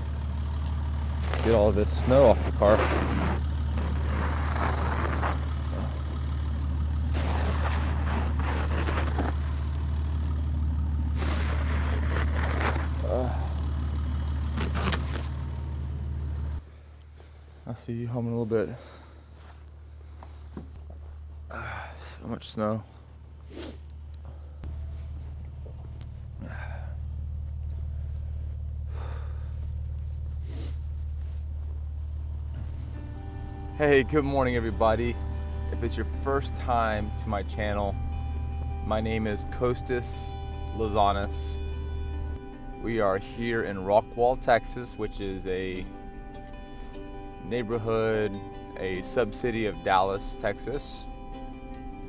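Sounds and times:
car engine idling: 0.0s - 52.0s
brush sweeping snow off car: 1.2s - 6.1s, 7.0s - 10.2s, 11.1s - 13.1s, 29.4s - 33.1s
short breath sounds: 27.7s - 29.8s.

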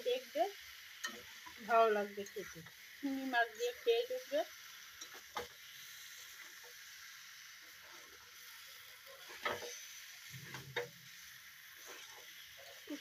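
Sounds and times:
curry sizzling in a wok: 0.0s - 13.0s
spatula scraping a pan: 7.7s - 13.0s.

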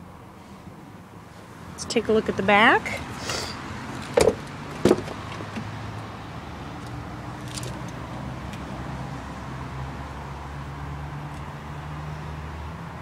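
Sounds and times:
car doors clunking: 4.0s - 5.7s.

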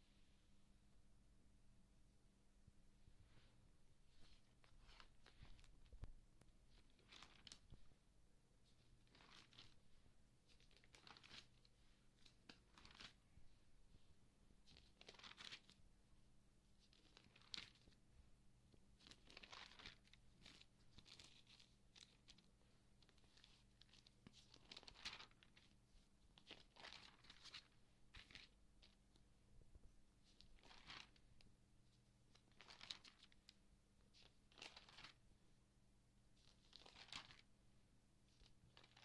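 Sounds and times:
magazine pages turning: 4.2s - 6.0s, 6.6s - 7.9s, 8.8s - 13.2s, 14.7s - 15.8s, 16.8s - 18.0s, 19.0s - 25.8s, 26.4s - 29.0s, 30.3s - 31.4s, 32.3s - 33.5s, 34.1s - 35.2s, 36.4s - 37.5s, 38.3s - 39.0s.

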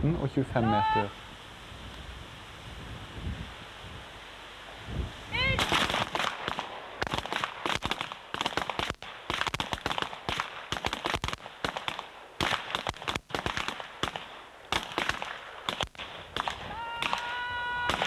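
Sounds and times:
pistol gunshots: 5.6s - 17.2s.

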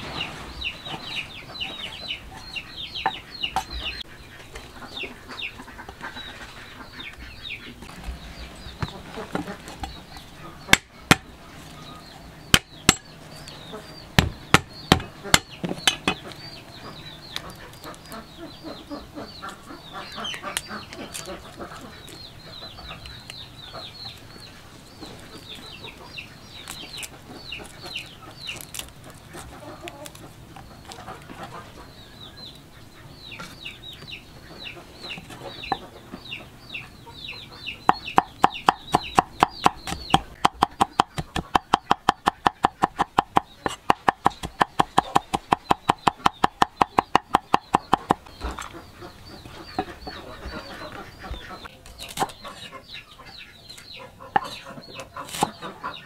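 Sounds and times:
chickens clucking: 0.0s - 56.0s
fast chopping: 14.2s - 16.2s, 37.9s - 48.2s.

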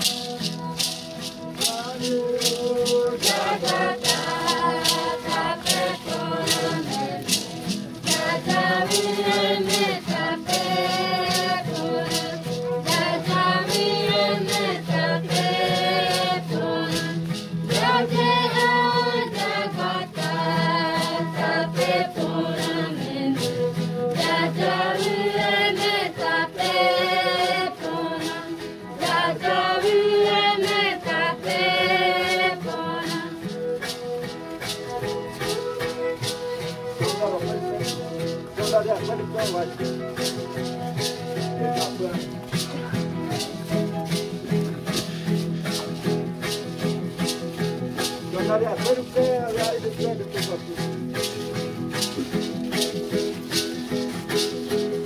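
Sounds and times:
group singing in chorus: 0.0s - 38.7s
hand rattles shaken: 0.0s - 55.0s.

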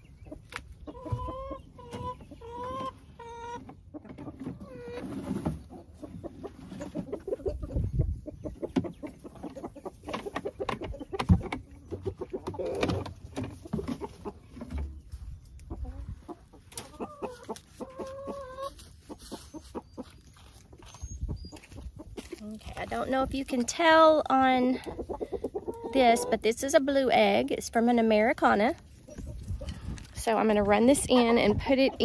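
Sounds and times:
chickens clucking: 0.0s - 32.0s
rustling in straw: 17.2s - 23.5s.

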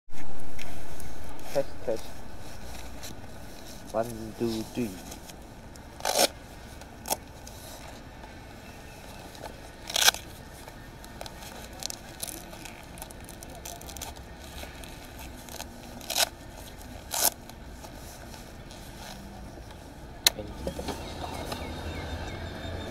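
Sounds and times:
fabric rustling: 0.1s - 20.0s
hook-and-loop straps ripping: 6.0s - 6.4s, 9.8s - 10.3s, 11.2s - 17.6s.

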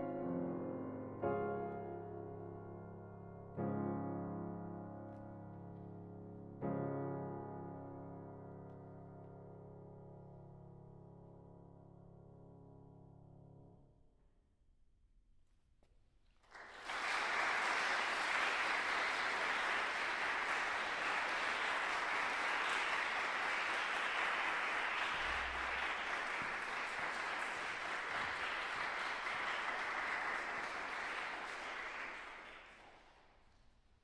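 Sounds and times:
audience applauding: 16.4s - 33.4s.

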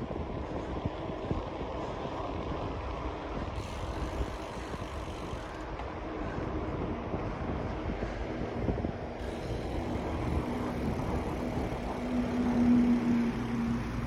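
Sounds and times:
bicycle tyre rumble: 0.0s - 14.0s
wind on microphone: 0.0s - 14.0s.

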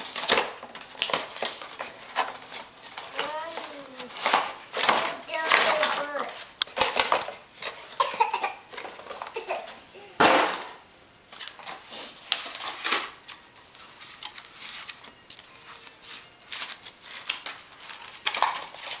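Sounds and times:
light clicks and crinkles: 11.3s - 19.0s.

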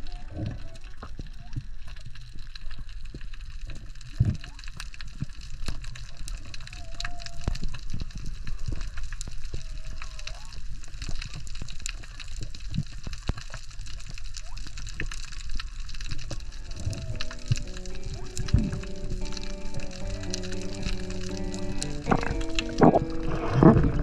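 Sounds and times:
crackle of small clicks: 0.0s - 24.0s
water sloshing and gurgling: 12.6s - 24.0s
low rumble: 16.6s - 24.0s.

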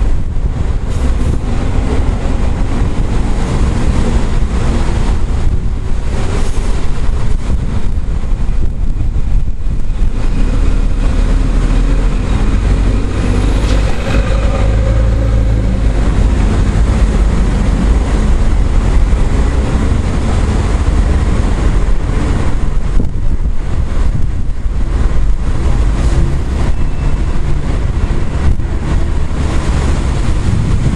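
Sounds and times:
storm wind buffeting microphone: 0.0s - 30.9s
vehicle engine hum: 0.0s - 30.9s.

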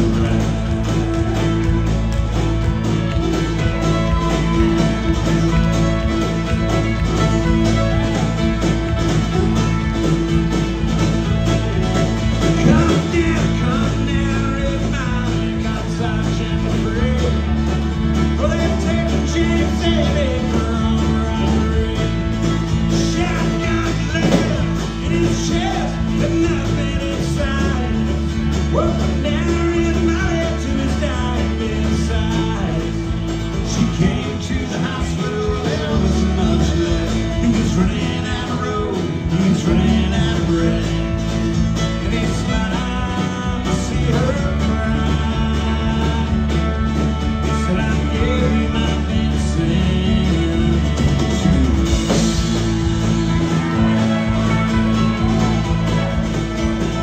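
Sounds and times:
bass: 0.0s - 57.0s
drums: 0.0s - 57.0s
guitar: 0.0s - 57.0s.

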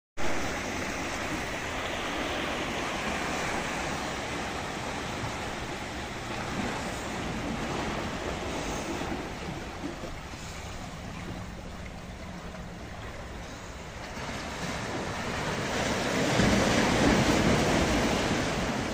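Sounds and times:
surf washing over rocks: 0.2s - 18.9s.

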